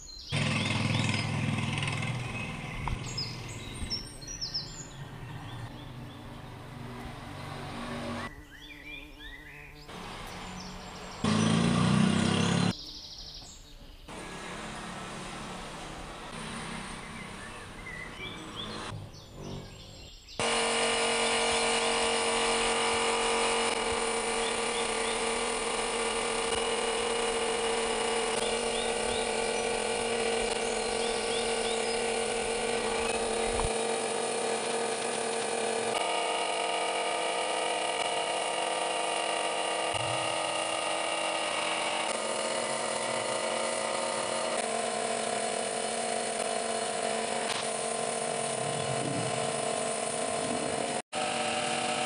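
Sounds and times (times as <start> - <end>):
birds chirping faintly: 0.0 - 20.4, 23.7 - 35.9
compressor motor hum with hiss: 6.2 - 12.7, 14.1 - 52.0.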